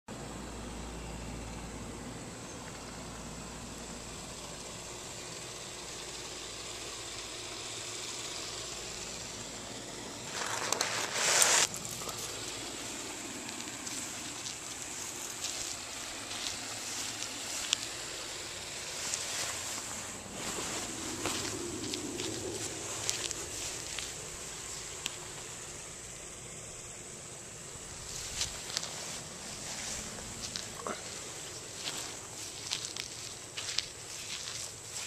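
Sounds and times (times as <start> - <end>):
microphone hiss: 0.1 - 35.0
hand rubbing on camera: 10.3 - 25.5, 28.0 - 35.0.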